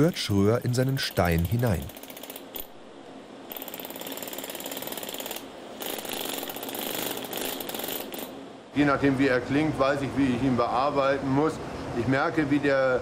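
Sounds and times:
pneumatic chisel hammering stone: 0:00.0 - 0:02.7, 0:03.5 - 0:08.3.

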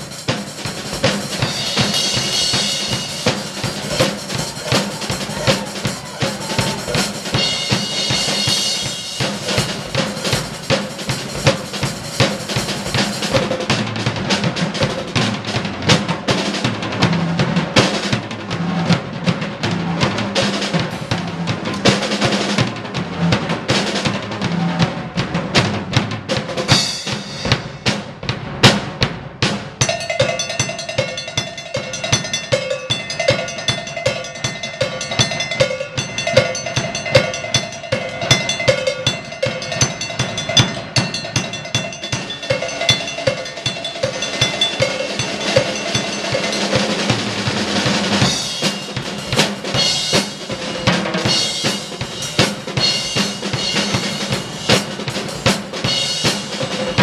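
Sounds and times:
repeated metallic beat: 0:00.0 - 0:24.6, 0:26.4 - 0:57.0
drum kits playing: 0:00.0 - 0:57.0.

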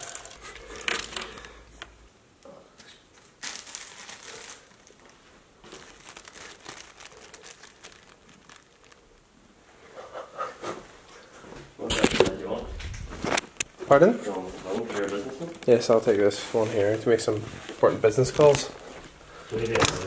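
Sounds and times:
towel rustling and crinkling: 0:00.0 - 0:01.6, 0:03.4 - 0:09.1, 0:12.2 - 0:20.0.

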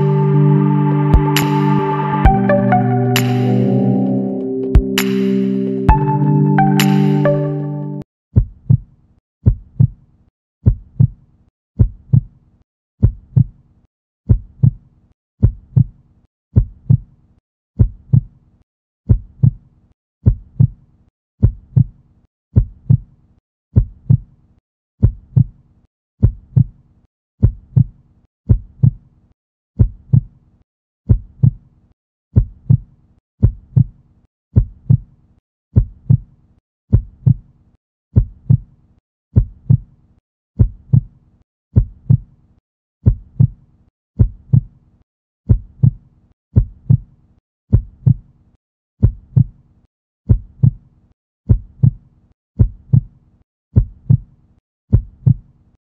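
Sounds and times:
heartbeat thumps: 0:04.8 - 0:05.0.

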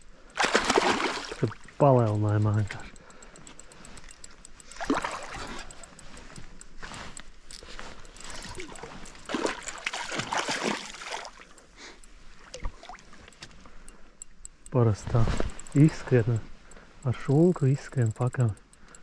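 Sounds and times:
water splashing and gurgling: 0:00.4 - 0:02.5, 0:04.7 - 0:06.0, 0:08.2 - 0:11.5, 0:12.4 - 0:13.3.

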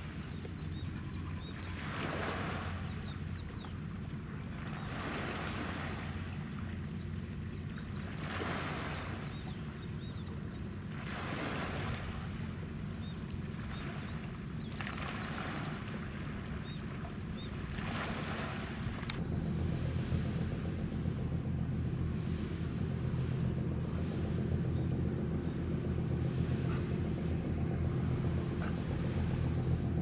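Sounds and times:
low rumble: 0:12.0 - 0:30.0.

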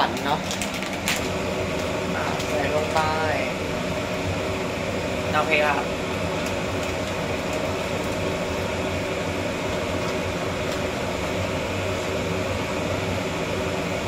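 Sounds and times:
gas burner hissing: 0:00.0 - 0:14.0
water boiling in a pot: 0:00.0 - 0:14.0.

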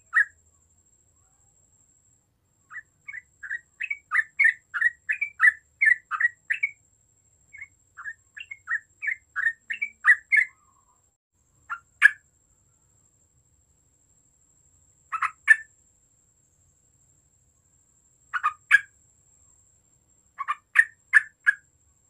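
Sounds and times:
bird chattering song: 0:00.0 - 0:00.4, 0:02.7 - 0:06.8, 0:07.5 - 0:11.0, 0:11.7 - 0:12.2, 0:15.1 - 0:15.7, 0:18.3 - 0:18.9, 0:20.4 - 0:21.7.

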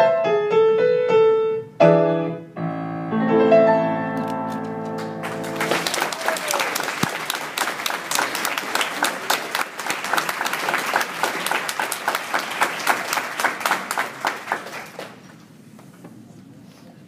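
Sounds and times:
audience applauding: 0:04.8 - 0:15.4.

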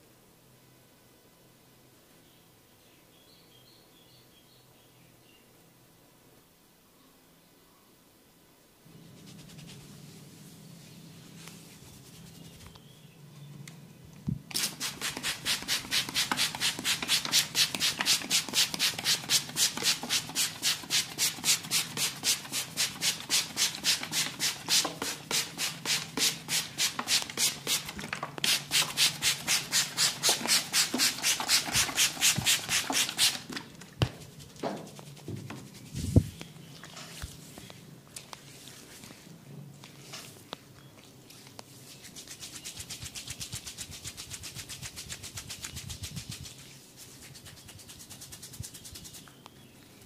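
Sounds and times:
rhythmic rubbing on hair and scalp: 0:09.0 - 0:12.8, 0:14.5 - 0:36.4, 0:41.7 - 0:49.3.

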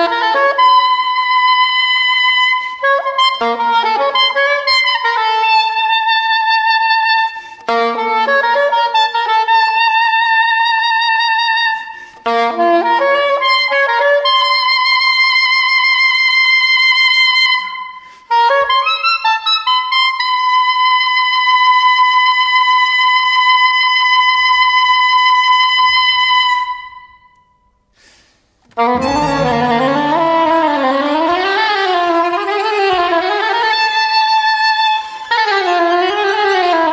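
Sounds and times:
soprano saxophone playing: 0:28.8 - 0:31.1
string orchestra: 0:29.0 - 0:30.9.

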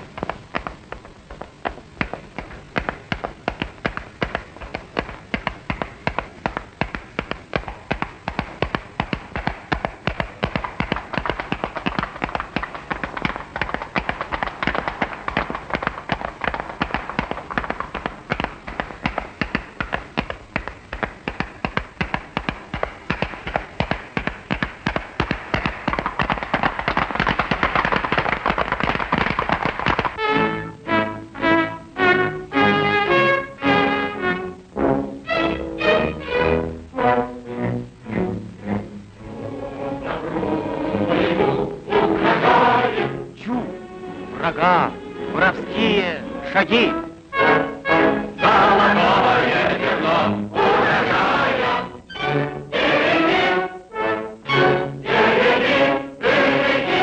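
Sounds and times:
sharp rhythmic taps: 0:00.0 - 0:30.8.

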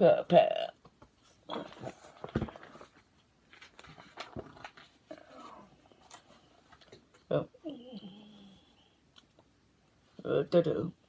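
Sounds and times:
book pages turning: 0:00.9 - 0:07.1.

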